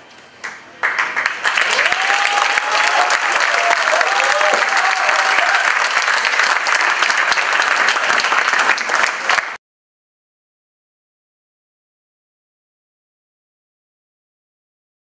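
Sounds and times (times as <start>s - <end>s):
audience applauding: 0.4s - 9.6s
crowd calling out: 1.6s - 5.8s.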